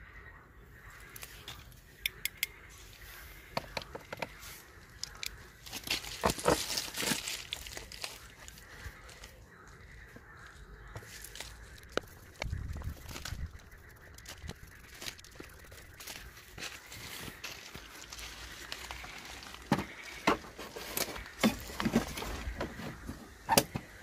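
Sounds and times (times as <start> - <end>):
crunching rustle: 4.4 - 24.0.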